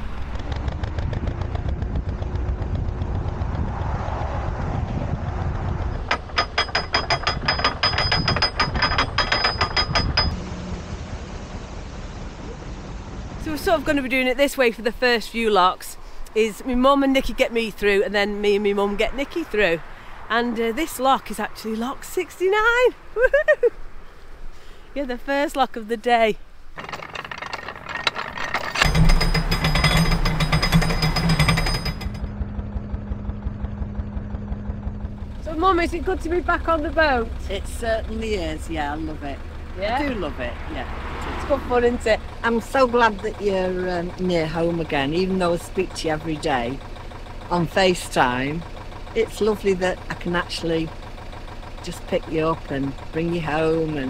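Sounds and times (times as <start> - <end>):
boat engine running: 0.0 - 14.5, 26.8 - 54.0
ratchet clattering: 5.8 - 10.4, 26.7 - 32.3
ratchet pawl clicking: 5.9 - 10.4.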